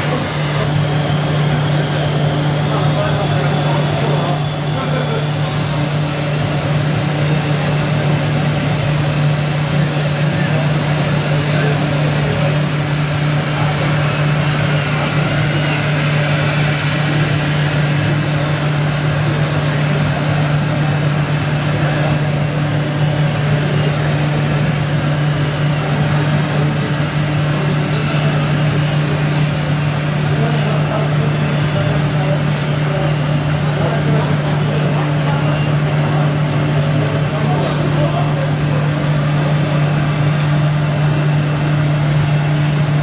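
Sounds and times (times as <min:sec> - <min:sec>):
engine idling hum: 0:00.0 - 0:43.0.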